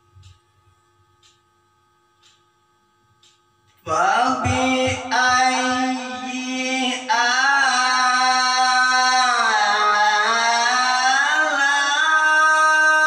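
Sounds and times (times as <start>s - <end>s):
man reciting melodically: 3.8s - 13.0s.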